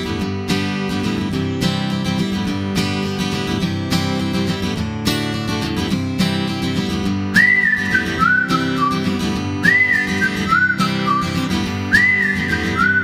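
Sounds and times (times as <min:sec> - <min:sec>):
strummed acoustic guitar: 0:00.0 - 0:13.0
whistled melody: 0:07.3 - 0:13.0.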